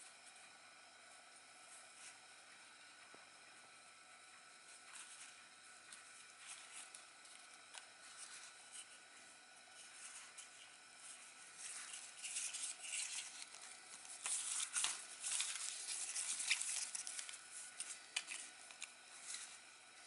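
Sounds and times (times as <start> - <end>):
plastic packaging rustling: 9.8 - 19.7.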